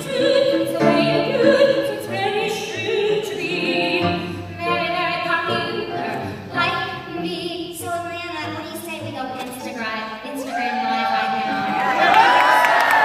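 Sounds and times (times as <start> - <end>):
woman singing soprano: 0.0 - 7.0.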